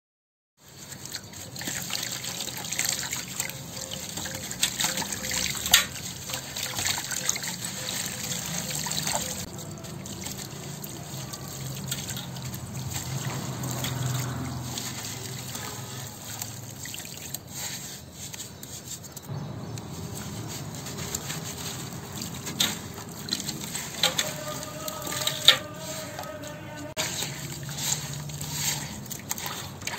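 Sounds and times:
water trickling and dripping: 0.6 - 29.9.

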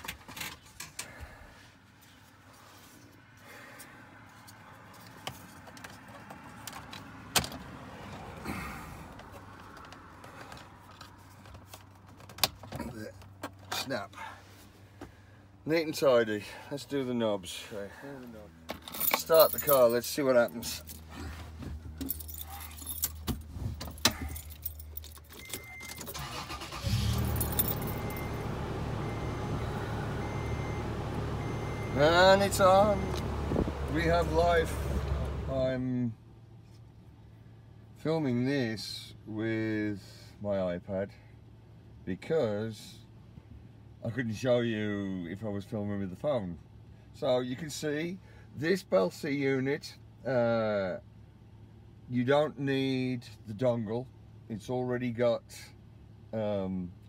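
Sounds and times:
car engine starting and idling: 5.4 - 38.0
keys jangling: 22.0 - 26.1, 27.2 - 28.3.

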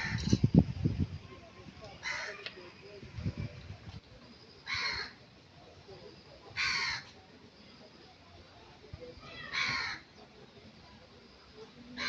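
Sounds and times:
crow cawing: 2.0 - 2.4, 4.6 - 5.2, 6.6 - 7.1, 9.5 - 10.0.

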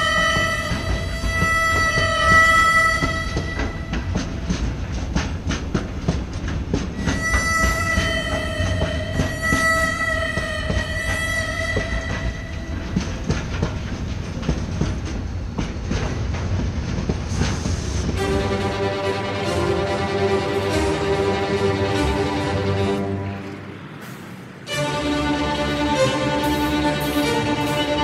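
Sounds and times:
music: 0.0 - 5.6, 6.9 - 13.6, 18.1 - 23.7, 24.7 - 28.0
train wheels clicking over rail joints: 0.0 - 28.0.

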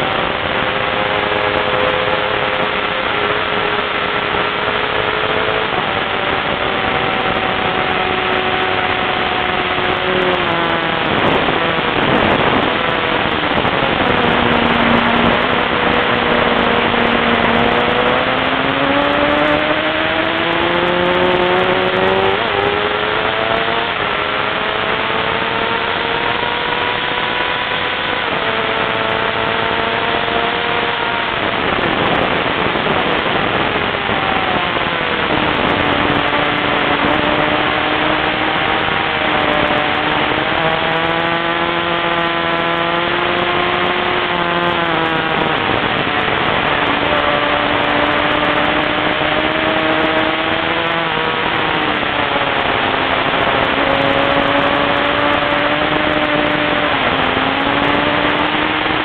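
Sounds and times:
motorcycle engine revving: 0.0 - 59.0
wind rush on microphone: 0.0 - 59.0.

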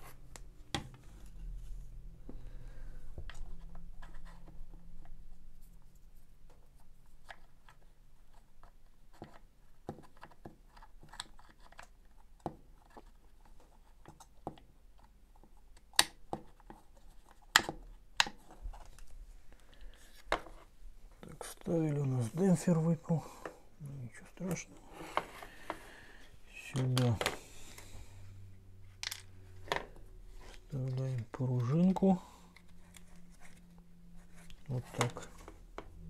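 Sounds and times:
plastic parts clicking and rubbing: 6.4 - 21.7, 28.9 - 36.0.

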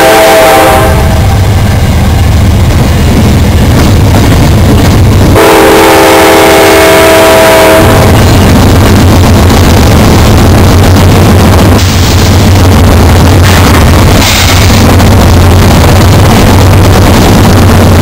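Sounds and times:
locomotive air horn: 0.0 - 1.4, 5.4 - 8.2
locomotive engine rumble: 0.0 - 18.0.

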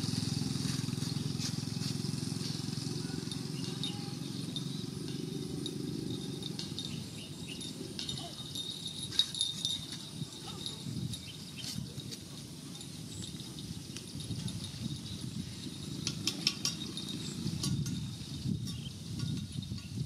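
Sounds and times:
low motor drone: 0.0 - 7.6.

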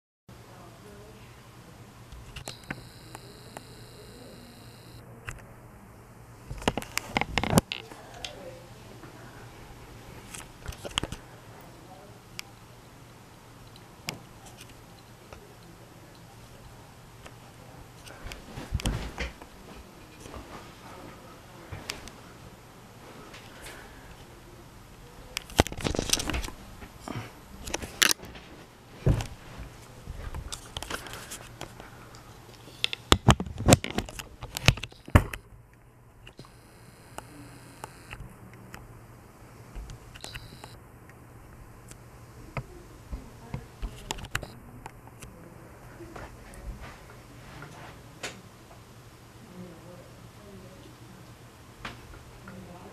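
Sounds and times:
ceiling fan humming: 0.3 - 52.9
camera handling noise: 25.4 - 26.6, 40.0 - 40.8.

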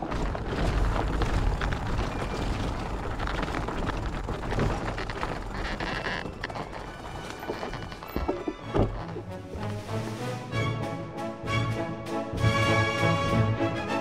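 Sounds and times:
bike knocks and rattles: 0.0 - 9.3
bike tyres rumbling on dirt: 0.0 - 10.2.

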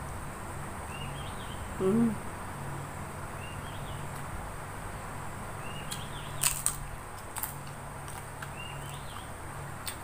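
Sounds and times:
cracker snapping: 5.9 - 10.0.

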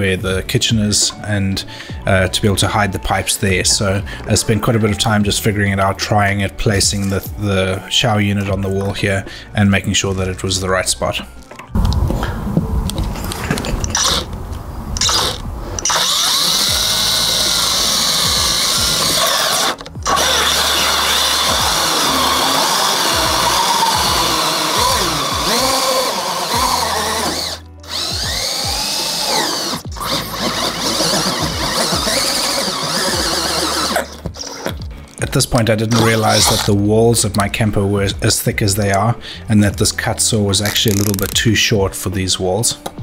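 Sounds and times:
cordless drill cutting with hole saw: 13.8 - 14.3, 15.0 - 34.8, 35.9 - 36.8, 40.7 - 41.3.

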